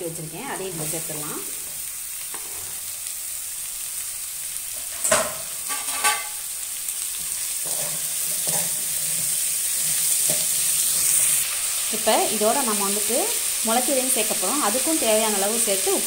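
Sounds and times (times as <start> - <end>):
oil sizzling in a pan: 0.0 - 16.0
spatula scraping a pan: 2.3 - 2.9, 4.8 - 6.5, 7.1 - 11.8.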